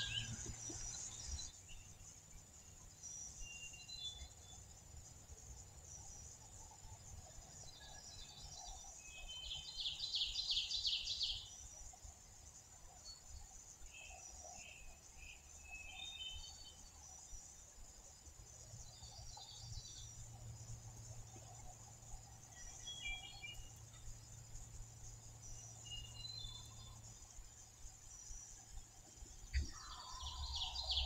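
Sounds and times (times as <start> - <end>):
songbirds calling: 0.0 - 4.6, 18.7 - 31.0
faint high-pitched hum: 0.0 - 31.0.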